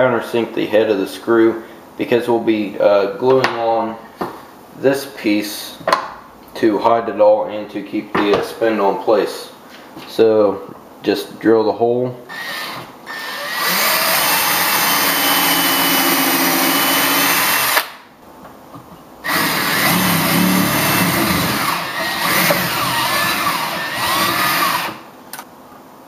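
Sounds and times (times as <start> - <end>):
cordless drill boring into wood: 12.3 - 17.8, 19.2 - 25.0.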